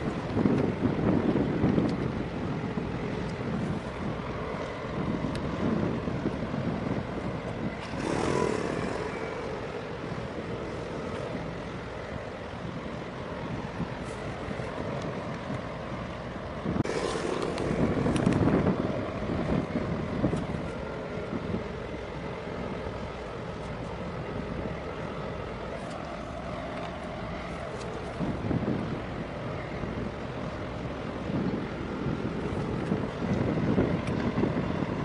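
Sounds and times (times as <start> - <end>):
engine drone: 0.0 - 35.0
harbour water washing: 0.0 - 35.0
wind noise on microphone: 0.0 - 35.0.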